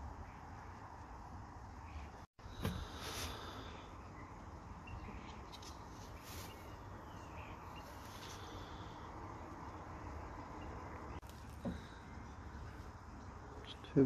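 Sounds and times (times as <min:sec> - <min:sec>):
bird chirps: 0:03.3 - 0:14.0.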